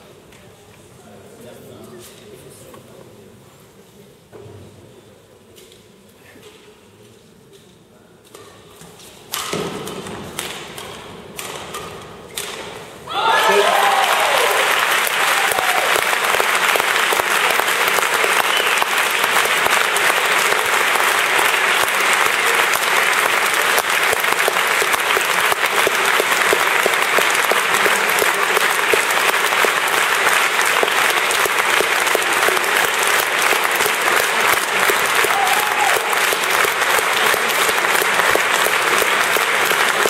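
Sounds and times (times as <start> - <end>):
large crowd clapping: 13.1 - 40.0.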